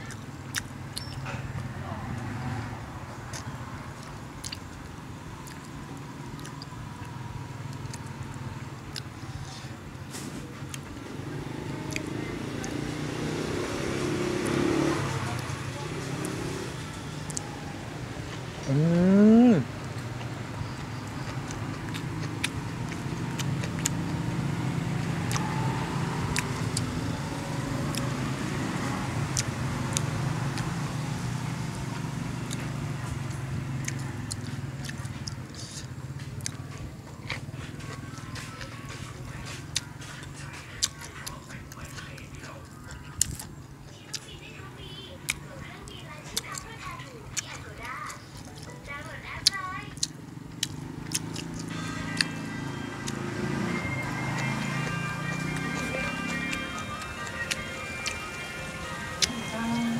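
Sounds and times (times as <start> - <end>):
person chewing food: 0.0 - 2.2, 3.2 - 10.0, 10.6 - 15.5, 16.2 - 30.9, 31.5 - 44.4, 45.2 - 59.9
low engine hum: 0.0 - 59.9
fingers picking at food on plate: 46.3 - 59.4.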